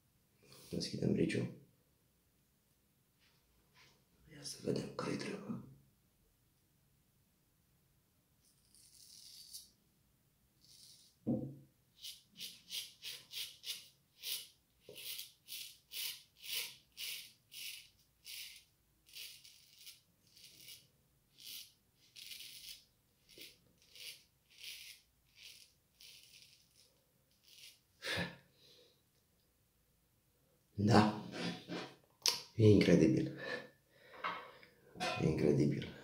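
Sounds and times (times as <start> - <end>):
straight razor scraping stubble: 8.4 - 9.7, 12.0 - 20.8, 21.4 - 27.8.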